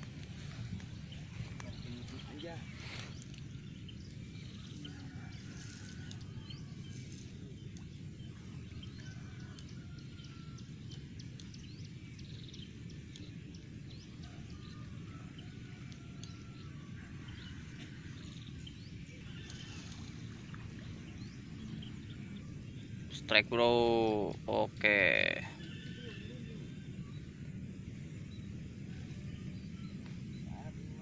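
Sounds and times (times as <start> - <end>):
small bird chirps: 18.2 - 22.9.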